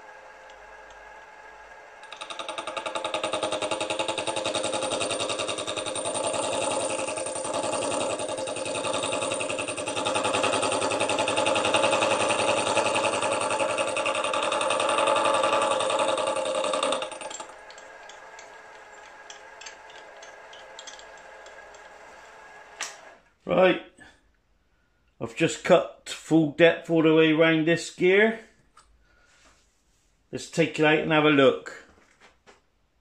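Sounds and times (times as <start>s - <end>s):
milling machine cutting metal: 0.0s - 23.0s.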